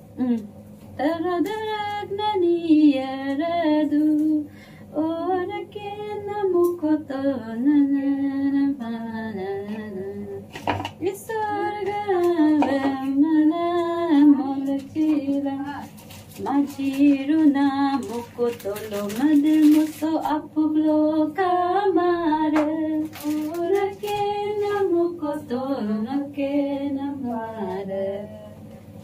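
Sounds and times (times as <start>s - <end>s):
woman singing unaccompanied: 1.0s - 28.6s.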